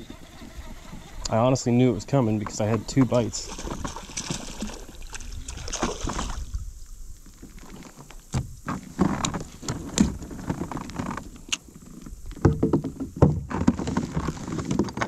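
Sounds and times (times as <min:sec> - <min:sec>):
fish splashing at water surface: 0:03.4 - 0:06.6
fish knocking on plastic hull: 0:12.4 - 0:15.0.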